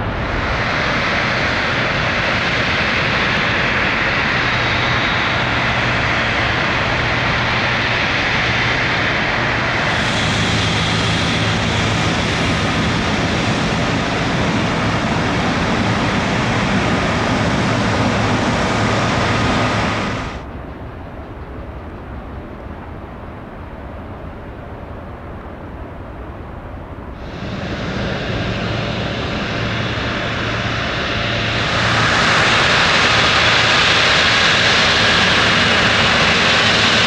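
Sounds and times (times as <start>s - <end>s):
jet airliner engines running: 0.0s - 37.0s.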